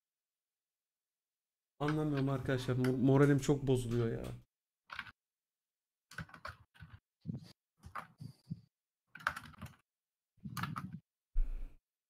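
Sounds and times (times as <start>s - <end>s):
keyboard typing: 1.8s - 5.2s, 6.1s - 9.8s, 10.4s - 11.0s.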